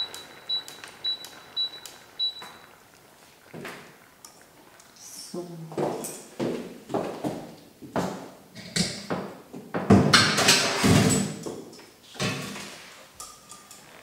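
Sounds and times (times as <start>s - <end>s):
dishes and utensils clattering: 9.9s - 14.0s.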